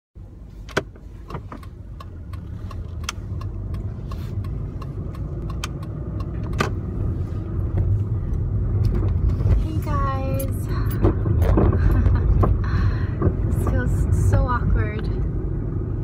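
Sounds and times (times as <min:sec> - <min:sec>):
car engine and road rumble: 0:00.2 - 0:16.0.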